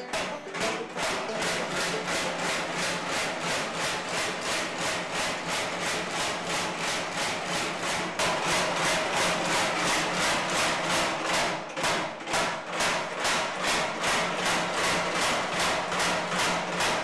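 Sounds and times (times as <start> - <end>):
power hammer pounding steel: 0.0 - 17.0.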